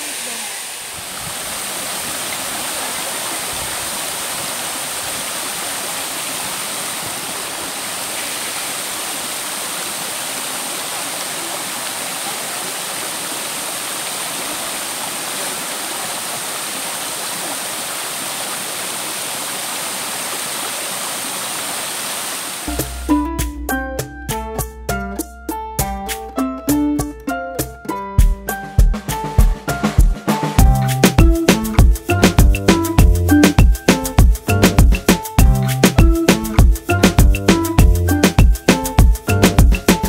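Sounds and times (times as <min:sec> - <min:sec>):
waterfall rushing: 0:00.0 - 0:23.0
plucked string music: 0:22.7 - 0:40.0.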